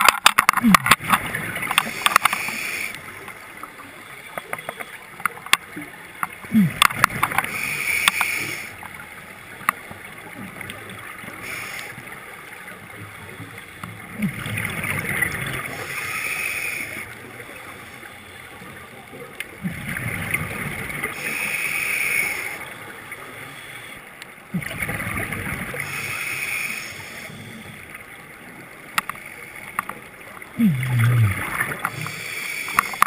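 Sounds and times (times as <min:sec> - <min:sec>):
regulator hiss: 0:21.2 - 0:22.6, 0:25.8 - 0:27.4, 0:31.9 - 0:33.0
diver exhaling bubbles: 0:24.5 - 0:26.0, 0:30.6 - 0:32.2.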